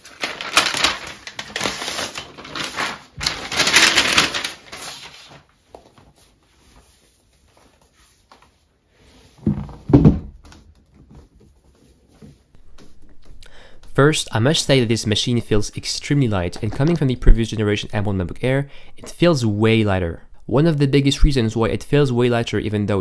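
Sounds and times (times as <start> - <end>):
plastic wrap crinkling: 0.0 - 5.6.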